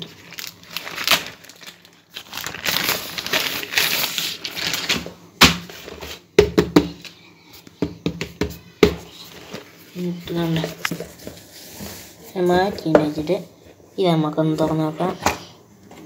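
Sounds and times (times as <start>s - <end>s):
plastic bag crinkling: 0.0s - 5.1s.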